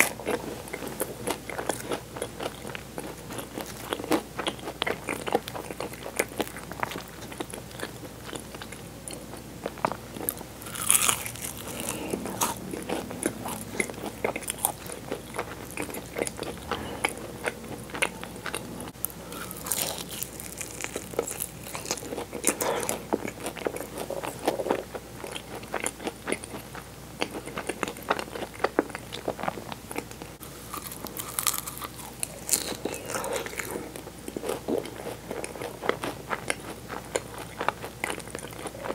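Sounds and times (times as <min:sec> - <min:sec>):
chewing: 0:00.0 - 0:38.9
pastry crunching bites: 0:09.8 - 0:16.5, 0:19.3 - 0:24.9, 0:30.6 - 0:38.9.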